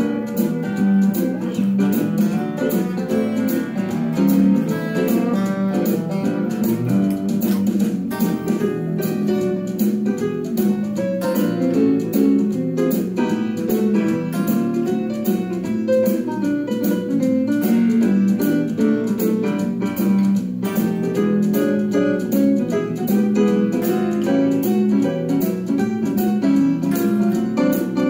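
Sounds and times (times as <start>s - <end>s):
band with drum beat: 0.0s - 28.0s
electric guitar lines: 0.0s - 28.0s.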